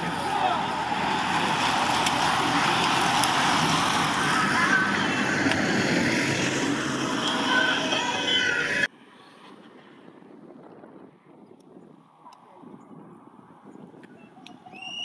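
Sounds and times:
bicycle tyres on road: 0.0s - 15.0s
wind on microphone: 9.3s - 14.8s.

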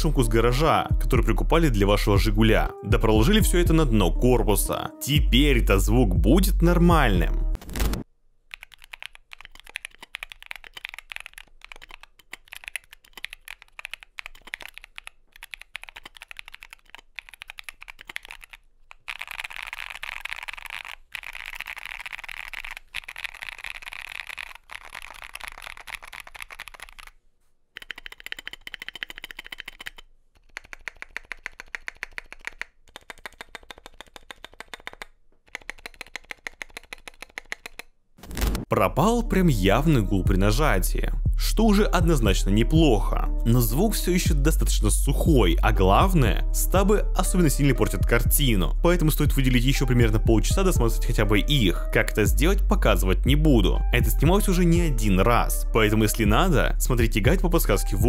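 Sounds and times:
mechanical keyboard typing: 7.7s - 27.1s, 27.8s - 37.9s.

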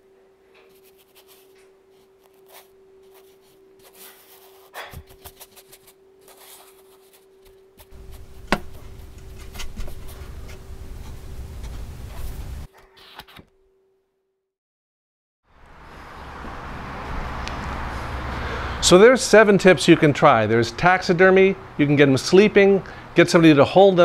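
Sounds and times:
paintbrush strokes on paper: 0.7s - 12.7s
steady low hum: 1.4s - 12.7s.

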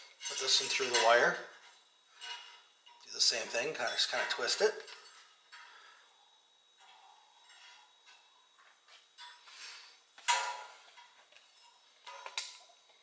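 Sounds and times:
metal brackets clinking: 0.1s - 1.4s, 2.2s - 5.7s, 10.2s - 12.7s.

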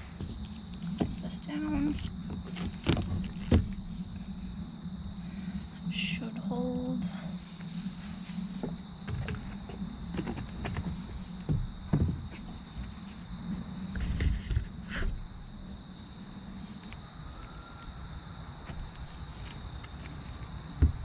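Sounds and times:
boards and tape being handled: 0.0s - 3.8s, 7.7s - 13.3s, 14.0s - 15.2s
low hum: 0.0s - 19.5s.

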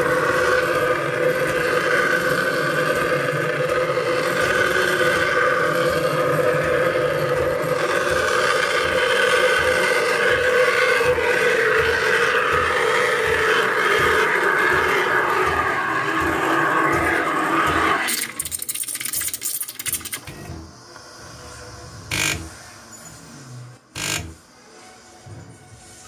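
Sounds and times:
sputtering crackles: 0.0s - 20.7s
steam wand hissing: 0.0s - 26.0s.

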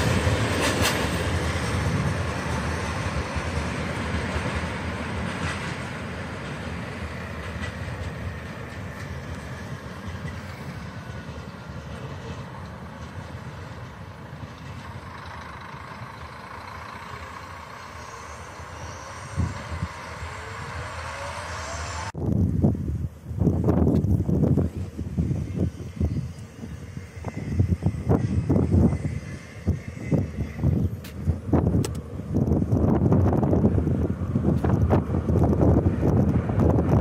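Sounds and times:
train wheels rumbling on rails: 0.0s - 37.0s
faint gliding whine: 8.6s - 22.2s, 24.3s - 32.5s.

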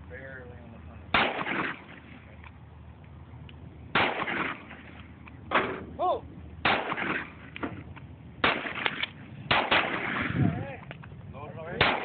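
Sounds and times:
handgun shots: 6.6s - 7.7s, 11.8s - 12.0s.

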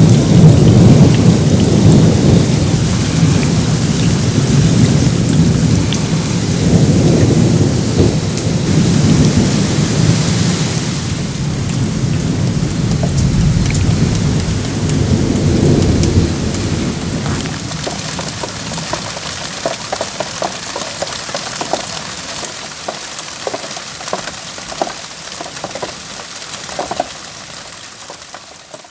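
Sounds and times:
thunder rumbling: 0.0s - 21.9s
heavy rain hissing: 0.0s - 28.9s
water drips and splashes: 0.0s - 28.9s.

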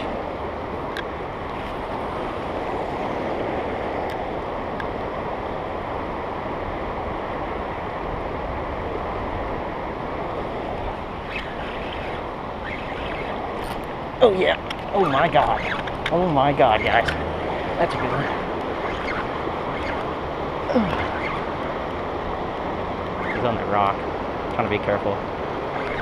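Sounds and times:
river rushing over rapids: 7.5s - 26.0s.

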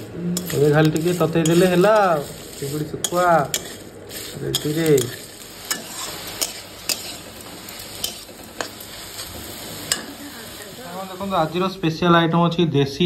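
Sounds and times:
spatula scraping pan: 0.0s - 11.6s
greens sizzling in a wok: 0.0s - 12.0s
spatula clicking on pan: 3.0s - 3.8s, 4.5s - 8.9s, 9.8s - 10.2s.

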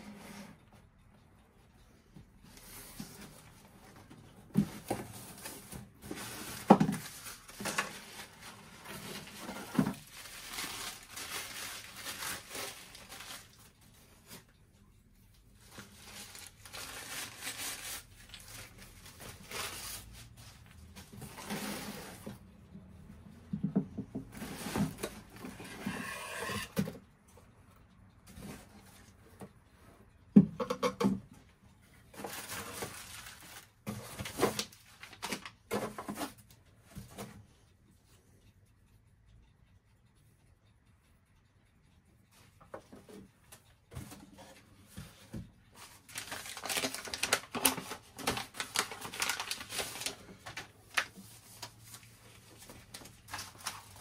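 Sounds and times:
cardboard and paper rustling: 4.5s - 13.6s, 15.6s - 22.3s, 32.1s - 36.4s, 44.0s - 54.0s.

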